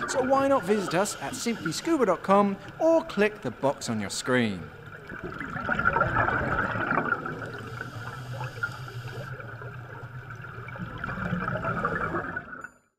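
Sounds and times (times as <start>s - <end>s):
underwater bubbles gurgling: 4.4s - 12.8s.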